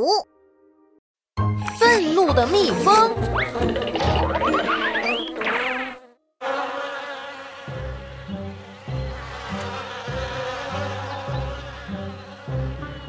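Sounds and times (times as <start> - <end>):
cartoon bee buzzing: 3.2 - 13.0.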